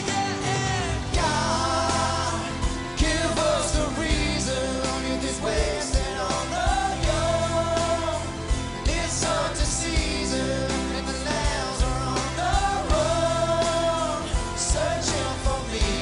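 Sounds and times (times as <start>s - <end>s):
backing band: 0.0s - 16.0s
men singing: 0.0s - 16.0s
strummed acoustic guitars: 0.0s - 16.0s.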